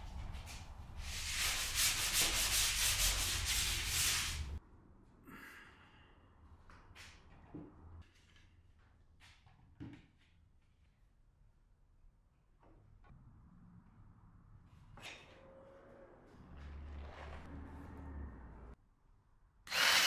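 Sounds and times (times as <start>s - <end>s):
hand-sanding rubbing strokes: 0.2s - 4.6s.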